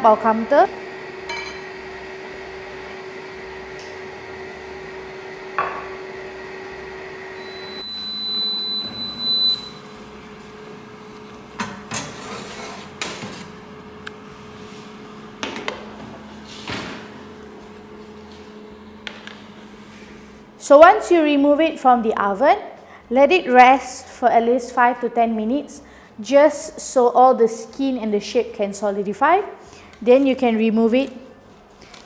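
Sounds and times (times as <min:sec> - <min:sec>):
machine hum: 0:00.0 - 0:20.8.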